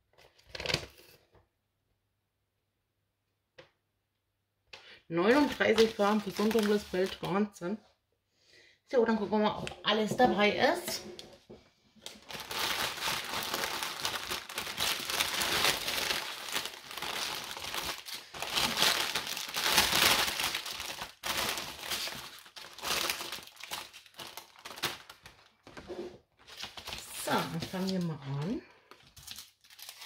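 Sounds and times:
plastic wrapping crinkling: 5.2 - 7.6, 12.0 - 30.0.

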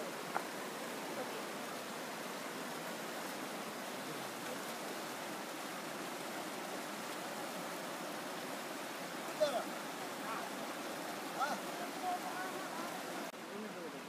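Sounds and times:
river rushing over rocks: 0.0 - 14.0.

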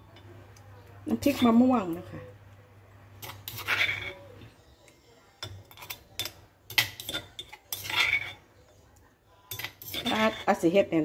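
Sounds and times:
spoon scraping ceramic bowl: 1.2 - 1.8, 3.2 - 4.5, 5.4 - 8.6, 9.5 - 10.8
spoon clinking on ceramic bowl: 9.5 - 10.4.

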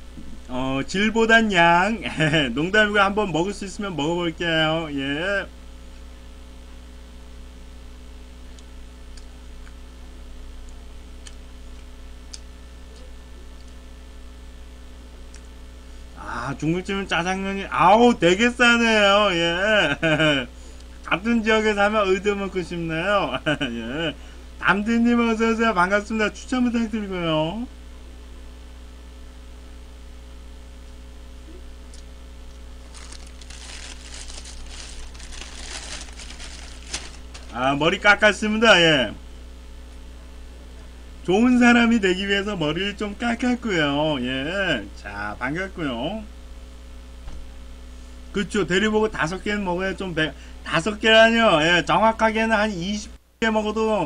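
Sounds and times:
electrical mains hum: 0.0 - 54.0
chewing clicks: 10.6 - 12.5
paper wrapper crinkling: 32.5 - 37.6.

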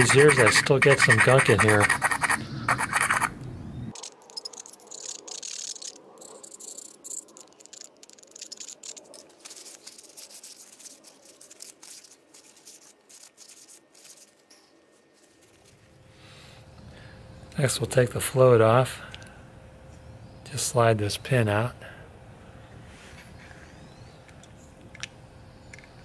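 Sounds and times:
paper towel rubbing metal: 0.0 - 3.3, 8.9 - 14.5
screwdriver scraping metal bowl: 0.0 - 3.3.

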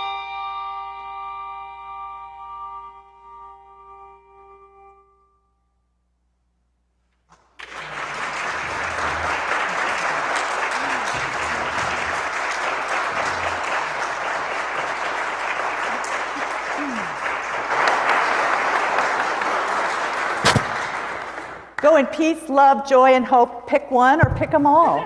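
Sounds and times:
congregation applauding: 7.3 - 21.9.

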